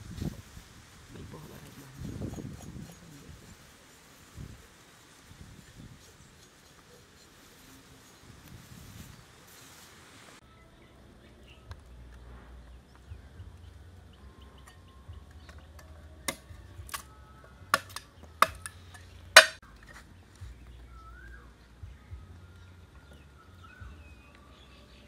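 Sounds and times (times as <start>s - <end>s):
knife chopping stalks on stone: 19.4s - 19.6s.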